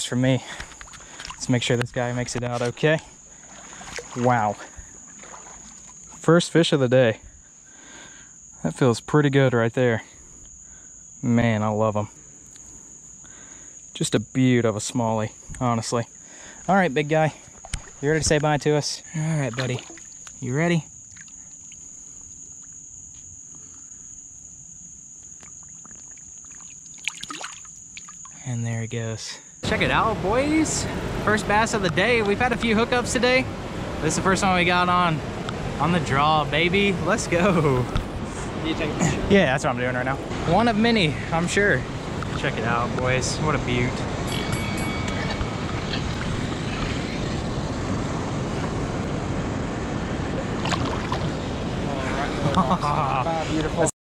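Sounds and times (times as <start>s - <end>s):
moving water: 0.0s - 6.6s, 16.4s - 22.9s, 25.3s - 28.4s, 29.6s - 53.9s
insects droning: 0.0s - 53.9s
wind: 0.0s - 53.9s
wind buffeting microphone: 40.1s - 52.5s.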